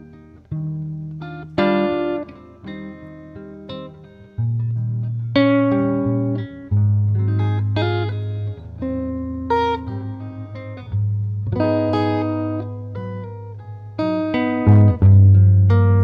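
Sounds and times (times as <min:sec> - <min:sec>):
deep bass notes: 0:14.6 - 0:16.0.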